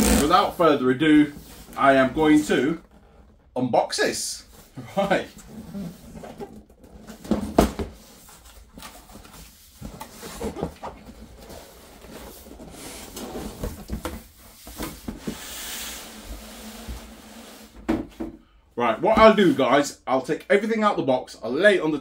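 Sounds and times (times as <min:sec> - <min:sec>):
cardboard sliding rub: 0:14.5 - 0:17.8.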